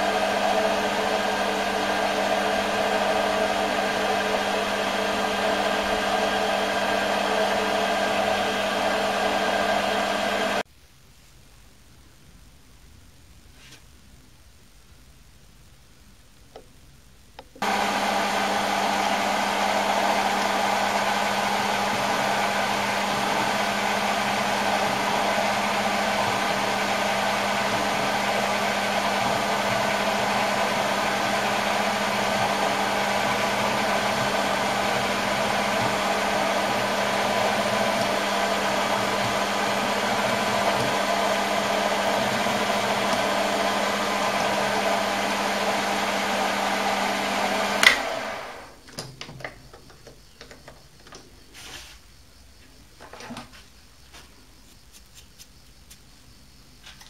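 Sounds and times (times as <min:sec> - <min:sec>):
lathe motor humming: 0:00.0 - 0:10.6, 0:17.6 - 0:48.8.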